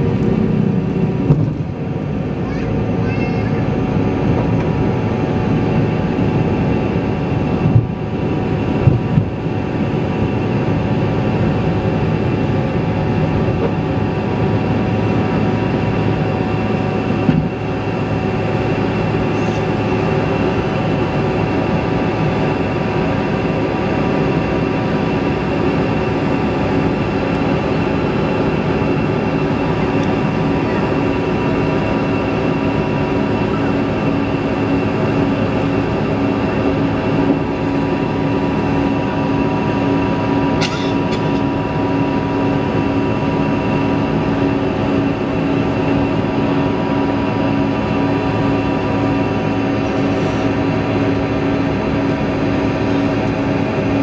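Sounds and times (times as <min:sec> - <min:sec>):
jet engines rushing and whining: 0:00.0 - 0:54.0.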